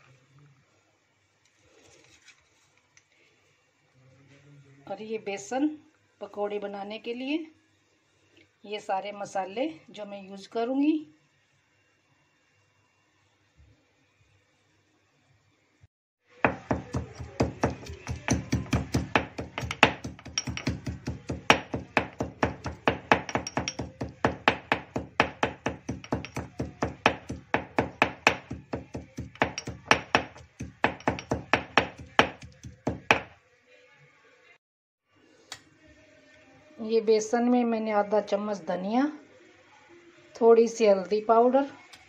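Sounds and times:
pestle pounding in stone mortar: 0:16.5 - 0:33.3.

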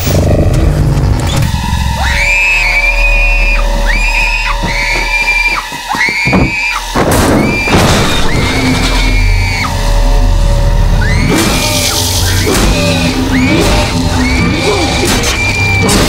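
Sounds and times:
girl screaming: 0:03.9 - 0:06.8
low rumble: 0:06.3 - 0:16.0.

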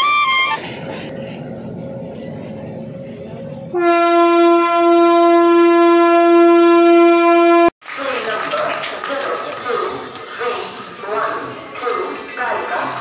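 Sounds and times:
locomotive air horn blast: 0:03.7 - 0:07.7.

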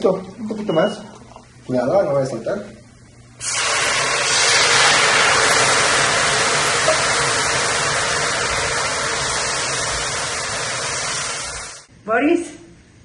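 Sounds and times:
wine sizzling in hot pan: 0:03.4 - 0:11.9.

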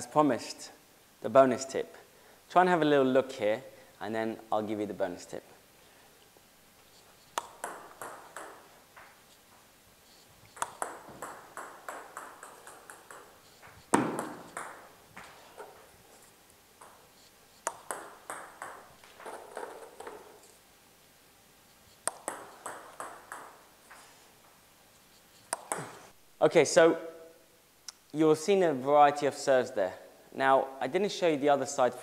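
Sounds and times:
ping pong ball bouncing: 0:07.3 - 0:09.2, 0:10.5 - 0:15.9, 0:16.8 - 0:20.4, 0:22.0 - 0:23.7, 0:25.5 - 0:26.0
bat hitting ball: 0:10.6 - 0:13.3, 0:13.9 - 0:14.9.

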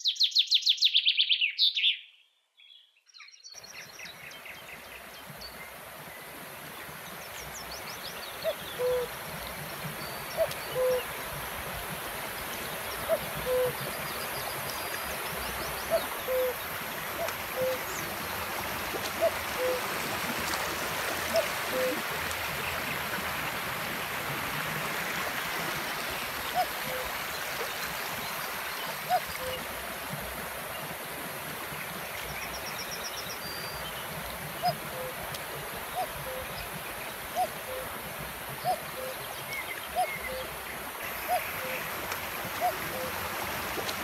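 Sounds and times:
stream rushing over rocks: 0:04.3 - 0:44.0
bird two-note hooting call: 0:08.5 - 0:09.1, 0:10.4 - 0:11.1, 0:13.1 - 0:13.8, 0:16.0 - 0:16.6.

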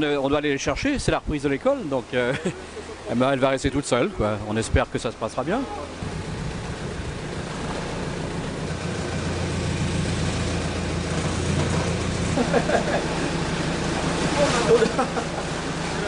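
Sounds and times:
engine idling: 0:05.7 - 0:16.0.

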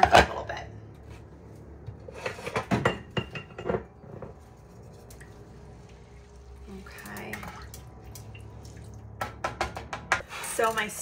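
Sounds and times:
low steady hum: 0:00.0 - 0:11.0
pots and utensils clinking: 0:02.1 - 0:04.4.

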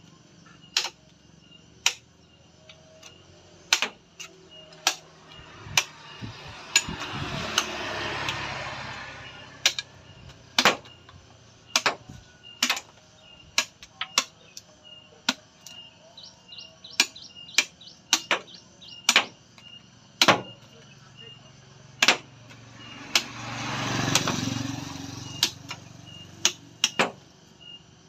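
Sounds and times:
knife chopping coconut shell: 0:03.7 - 0:04.0, 0:19.1 - 0:19.4, 0:22.0 - 0:22.3.

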